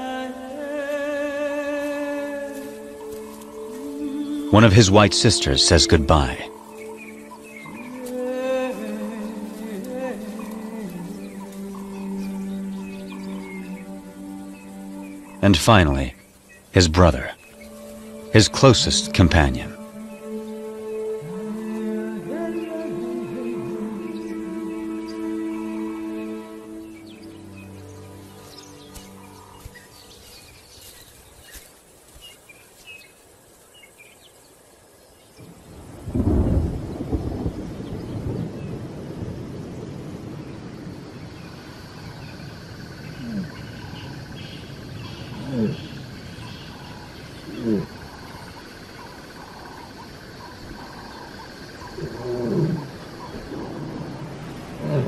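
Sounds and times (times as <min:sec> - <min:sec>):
insects chorus: 0:00.0 - 0:55.0
deep rumble of thunder: 0:35.4 - 0:44.0
lioness moaning call: 0:43.1 - 0:44.1, 0:45.1 - 0:49.9, 0:50.5 - 0:55.0.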